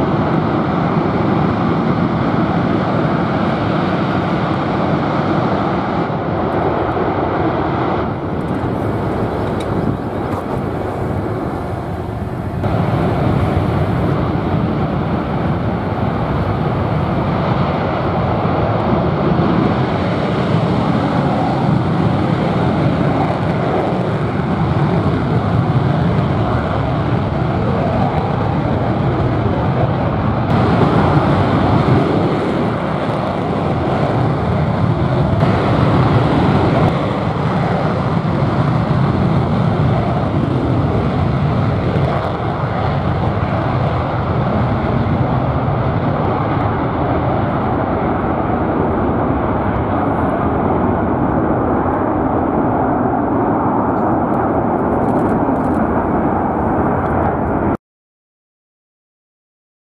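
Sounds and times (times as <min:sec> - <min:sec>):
jet engines at takeoff power: 0:00.0 - 0:57.8.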